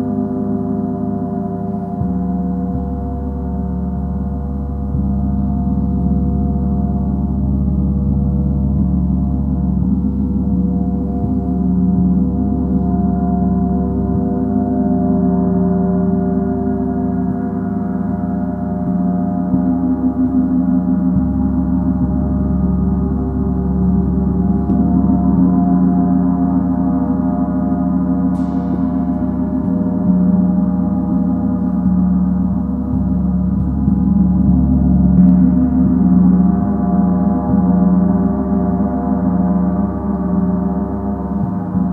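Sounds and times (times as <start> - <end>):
deep hum: 0.0 - 41.9
gong sustained tones: 0.0 - 41.9
light gong strike: 28.3 - 31.7.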